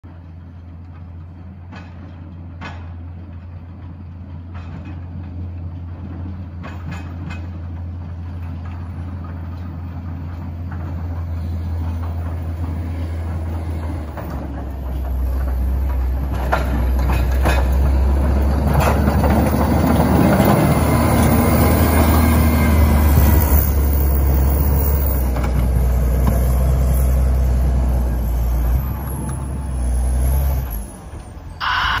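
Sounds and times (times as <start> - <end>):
diesel engine of grader: 0.0 - 32.0
plow blade scraping snow: 7.9 - 31.2.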